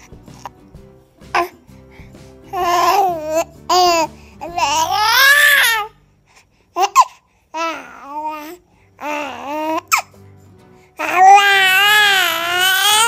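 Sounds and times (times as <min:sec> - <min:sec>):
baby babbling and squealing: 0:02.5 - 0:05.9, 0:06.8 - 0:10.1, 0:11.0 - 0:13.0.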